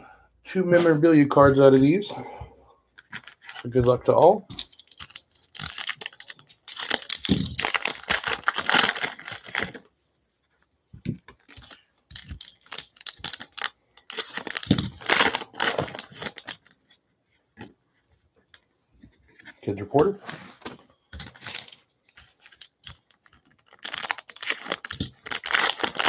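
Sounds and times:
foil wrappers tearing and crinkling: 4.5 - 9.8, 11.4 - 16.8, 21.2 - 26.0.

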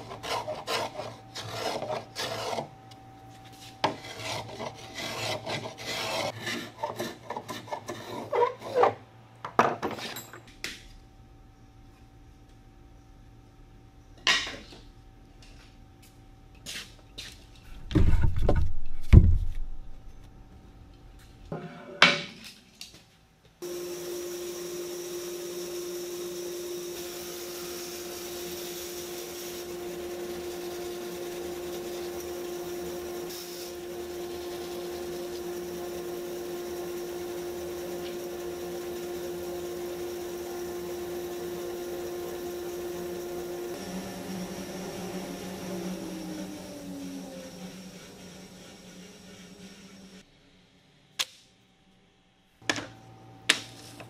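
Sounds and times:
bandsaw slicing boards: 0.0 - 2.7, 3.8 - 9.0.

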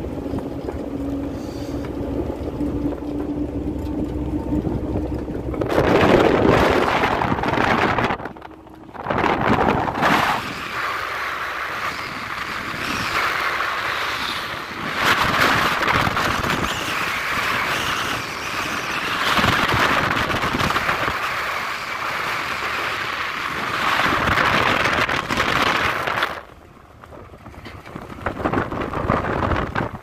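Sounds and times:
road noise: 0.0 - 30.0
wind rushing over microphone: 0.0 - 30.0.

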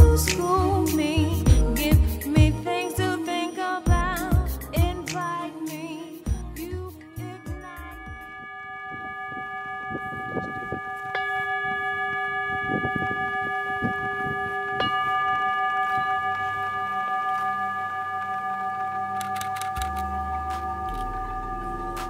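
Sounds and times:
singing bowls ringing: 5.1 - 22.0
singing bowl strikes: 7.1 - 22.0.

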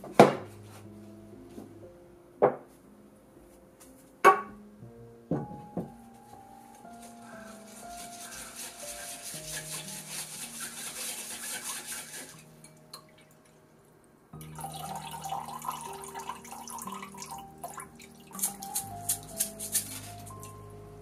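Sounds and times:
utensil scraping powder through sieve: 7.0 - 12.5, 18.3 - 20.6
liquid pouring into bowl: 14.4 - 18.7.

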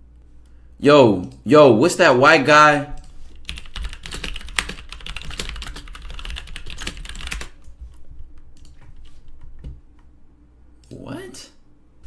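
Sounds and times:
fast typing on keyboard: 3.4 - 7.6.

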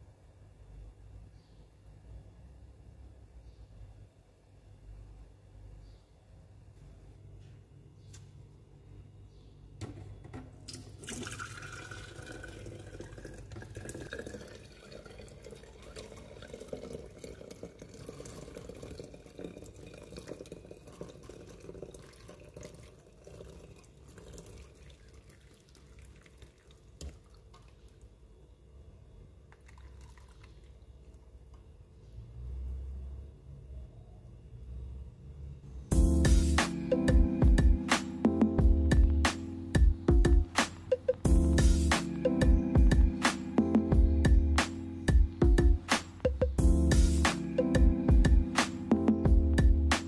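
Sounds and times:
tea pouring through strainer: 10.7 - 28.0, 29.5 - 31.2.

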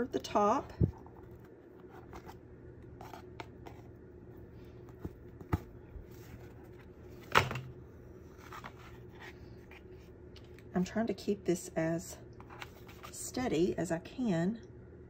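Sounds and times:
faint rustling of thread and covers: 0.0 - 7.2.

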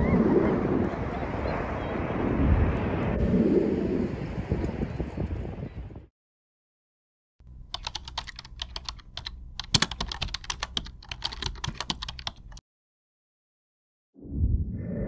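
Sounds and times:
keyboard typing clicks: 7.5 - 12.6.

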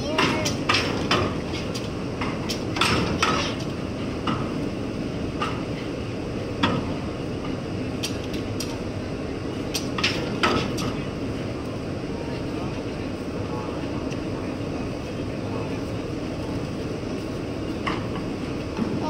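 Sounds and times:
low rumble of ferry machinery: 0.0 - 19.0.

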